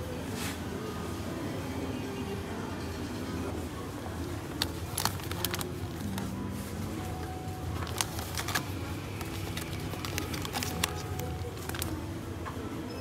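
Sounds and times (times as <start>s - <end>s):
shop ambience hum: 0.0s - 13.0s
spice packet rustling: 4.5s - 6.4s, 7.1s - 12.0s.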